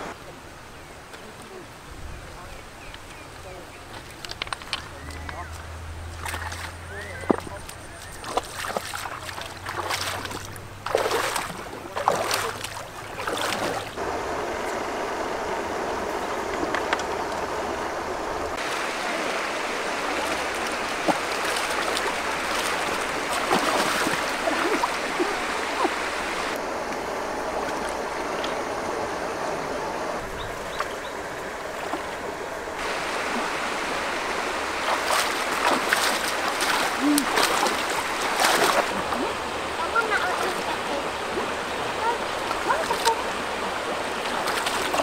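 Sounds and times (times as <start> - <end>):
water rushing and sloshing: 0.0 - 45.0
small splashes and clicks: 2.9 - 14.0, 20.2 - 25.9, 34.8 - 45.0.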